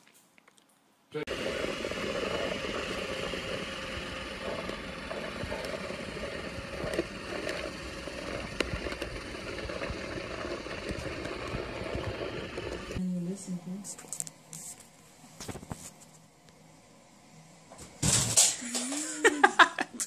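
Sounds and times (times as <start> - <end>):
robot vacuum motor whirring: 1.3 - 13.0.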